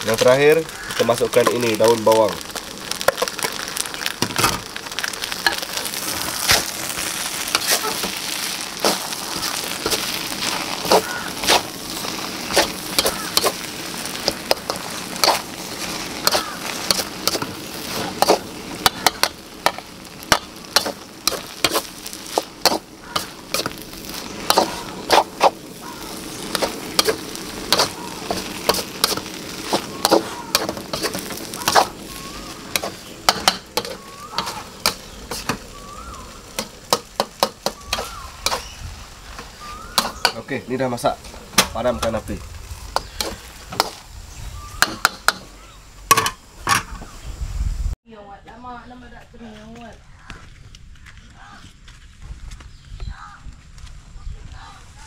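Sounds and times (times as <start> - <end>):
food sizzling in a wok: 0.0 - 48.0
spatula scraping a wok: 3.0 - 40.5.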